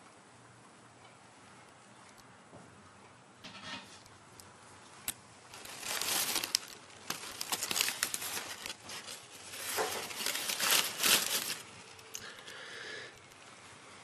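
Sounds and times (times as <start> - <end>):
newspaper rustling and crinkling: 5.4 - 12.2.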